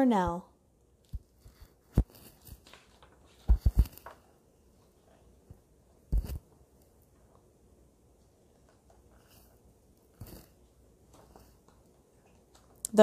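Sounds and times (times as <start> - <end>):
page turning: 1.4 - 5.2, 6.2 - 6.5.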